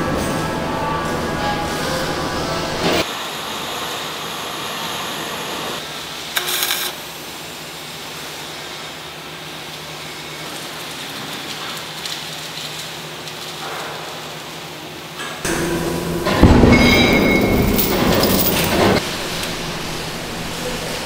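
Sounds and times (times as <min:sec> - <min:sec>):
welding arc burst: 0:06.3 - 0:07.4
steady machine hum: 0:15.4 - 0:21.0.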